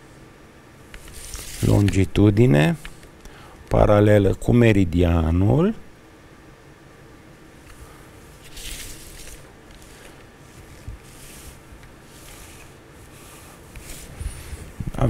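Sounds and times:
plastic scraping across paper: 1.0s - 2.0s, 8.4s - 14.8s.

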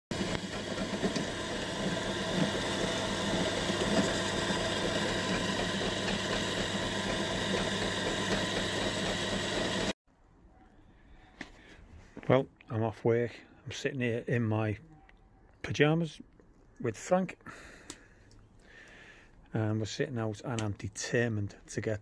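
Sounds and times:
electric drill boring through metal: 0.1s - 10.0s.

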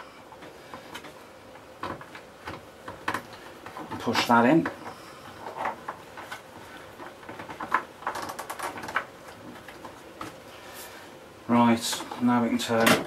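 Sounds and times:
hands clicking and scraping plastic: 0.4s - 10.4s.

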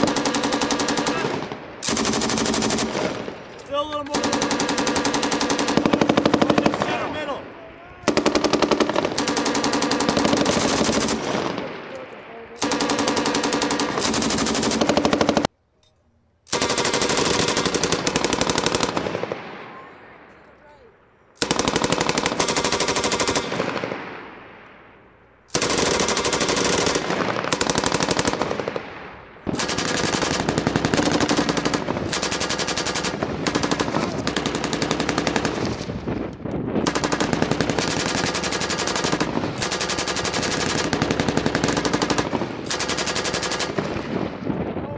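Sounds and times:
machine guns firing bursts: 0.0s - 3.3s, 4.1s - 7.2s, 8.1s - 11.9s, 12.6s - 15.5s, 16.5s - 19.6s, 21.4s - 24.0s, 25.5s - 28.8s, 29.5s - 35.8s, 36.8s - 44.4s.

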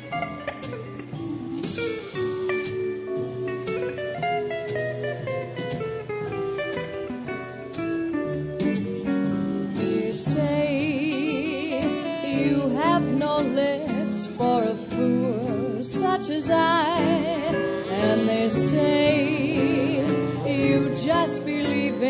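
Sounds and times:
swing band playing: 0.0s - 22.0s
vibrato lead melody: 16.4s - 22.0s.

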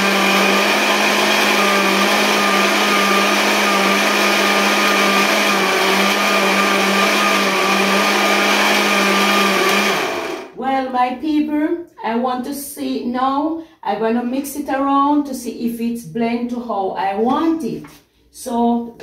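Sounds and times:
blender motor running: 0.0s - 10.6s.

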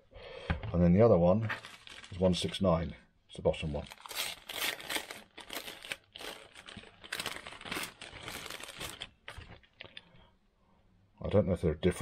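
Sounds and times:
plastic bag crinkling: 1.5s - 2.8s, 3.6s - 10.1s.

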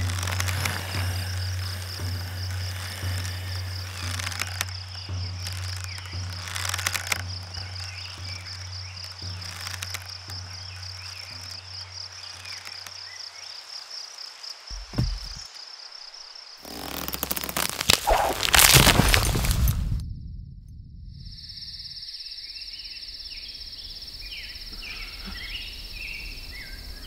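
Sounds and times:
low hum: 0.0s - 12.7s, 16.7s - 24.0s
boots running on twigs and leaves: 0.0s - 13.2s, 14.7s - 15.4s, 16.7s - 20.0s
insect chirring: 0.0s - 27.0s.

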